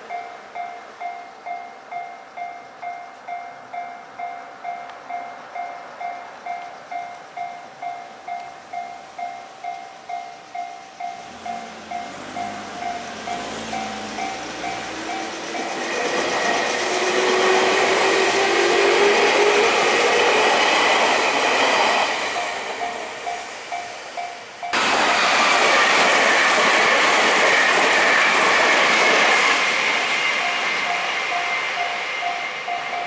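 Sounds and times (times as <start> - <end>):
crossing alarm bell dinging: 0.0 - 33.0
electric train passing: 0.0 - 33.0
train wheel clatter: 9.3 - 33.0
train motor whine: 11.2 - 33.0.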